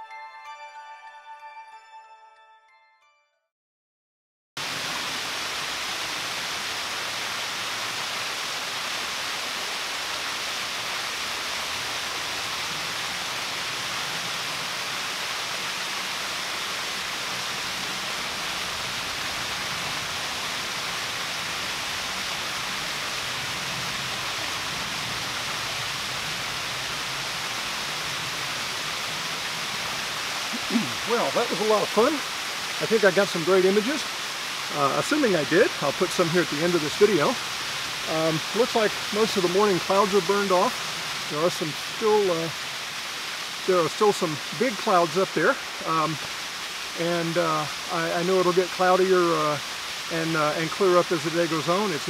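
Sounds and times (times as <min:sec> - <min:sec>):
small waterfall splashing: 0:04.6 - 0:52.0.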